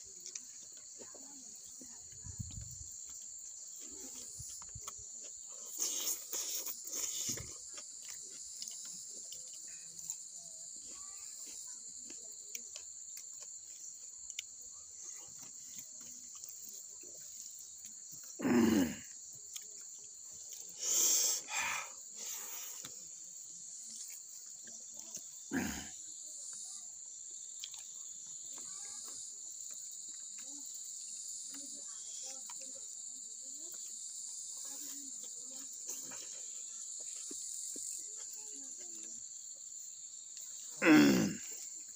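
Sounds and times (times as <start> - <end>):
high-pitched insect chorus: 0.0 - 41.9
person chewing with wet clicks: 0.1 - 0.9, 4.0 - 10.5, 11.5 - 14.6, 19.4 - 20.7, 27.5 - 28.0.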